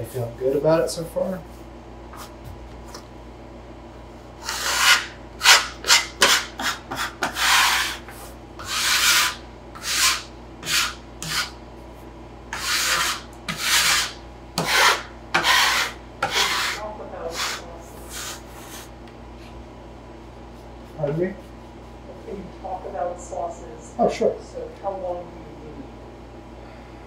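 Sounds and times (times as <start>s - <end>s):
scraper scraping wooden worktable: 4.4s - 11.6s, 12.5s - 18.9s.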